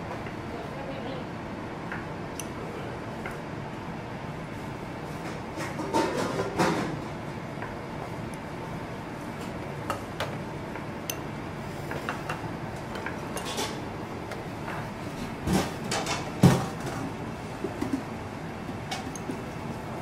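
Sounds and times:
utensils and dishes clinking: 13.0 - 13.8.

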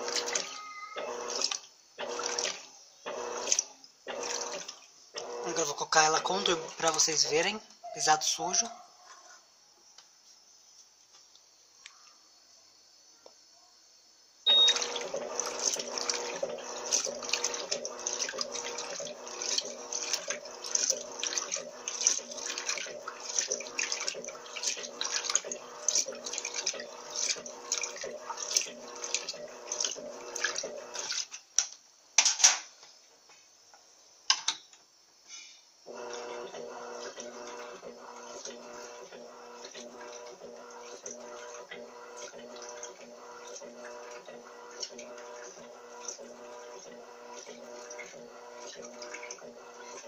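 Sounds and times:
washing machine agitating: 0.0 - 8.7, 14.5 - 31.6, 35.9 - 50.0.

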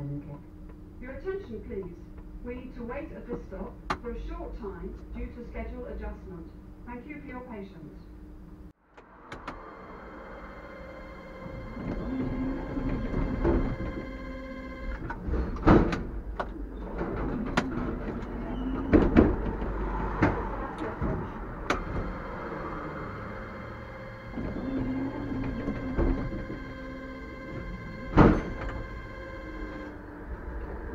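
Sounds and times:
tram equipment humming: 8.1 - 30.9.

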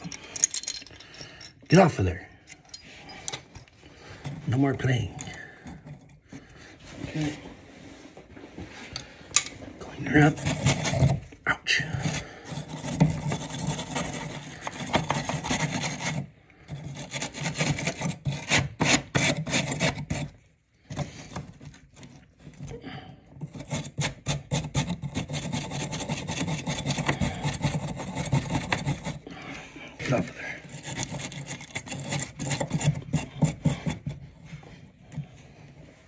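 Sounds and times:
abrasive scraping copper pipe: 9.8 - 36.0.

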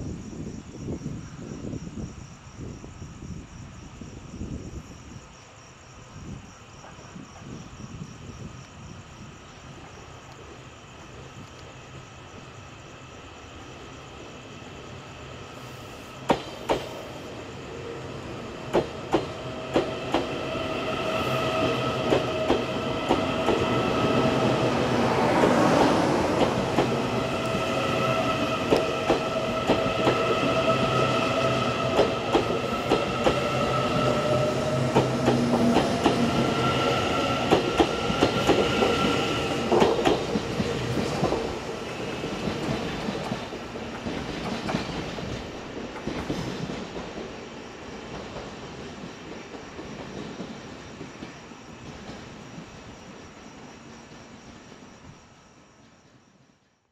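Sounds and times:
electric train whine: 7.3 - 56.7
train wheels clicking over rail joints: 16.2 - 17.1, 18.6 - 20.4, 34.2 - 36.4, 37.4 - 41.6.

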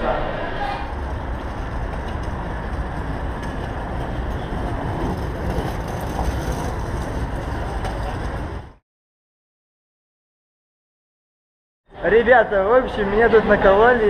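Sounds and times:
city traffic rumble: 0.0 - 8.8, 11.9 - 14.0.

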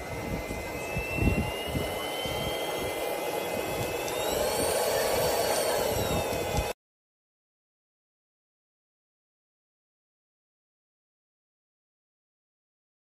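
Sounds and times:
vacuum cleaner motor whine: 0.0 - 6.8.

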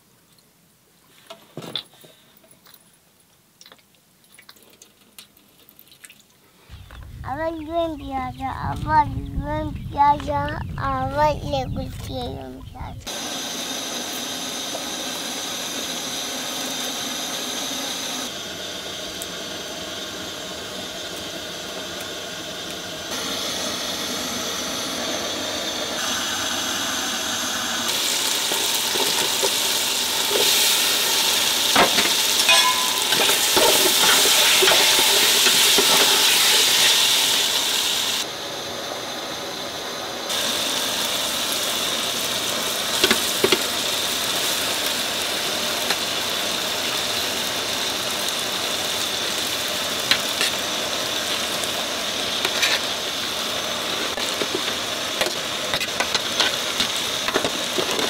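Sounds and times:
gas burners hissing: 6.7 - 58.0
utensils clinking on pots: 31.7 - 37.0.

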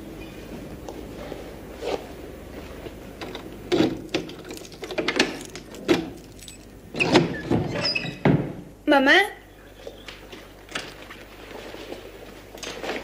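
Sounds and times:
keys jingling: 4.1 - 6.8.

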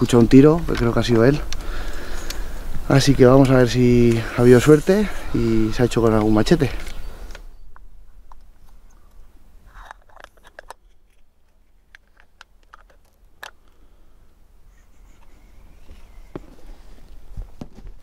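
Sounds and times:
light rustling of rifle sling: 0.0 - 13.9, 14.8 - 18.0
rifle handling clicks: 6.0 - 13.8.

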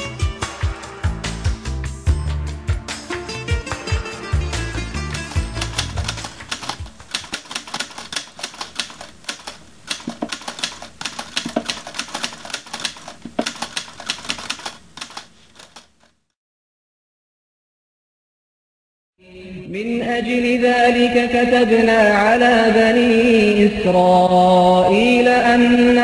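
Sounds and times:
music: 0.0 - 6.5
keyboard typing clicks: 5.2 - 16.2.

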